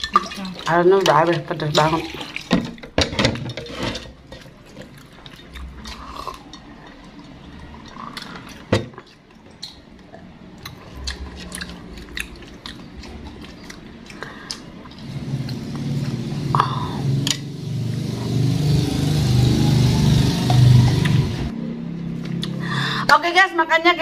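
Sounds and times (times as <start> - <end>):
chewing: 4.3 - 16.2.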